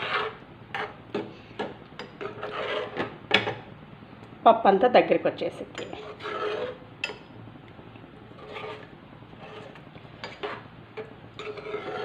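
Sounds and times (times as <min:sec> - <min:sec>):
spoon stirring thick dal: 0:00.0 - 0:03.6, 0:05.6 - 0:07.2, 0:08.2 - 0:12.0.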